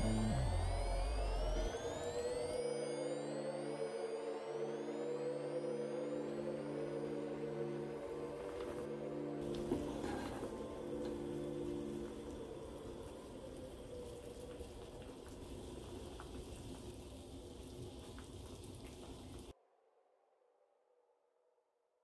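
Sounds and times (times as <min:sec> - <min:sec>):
stew boiling and bubbling: 0:09.4 - 0:19.5.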